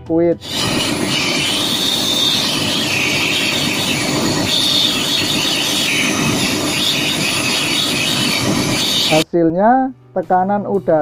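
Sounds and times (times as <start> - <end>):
compressed air hissing: 0.4 - 9.2.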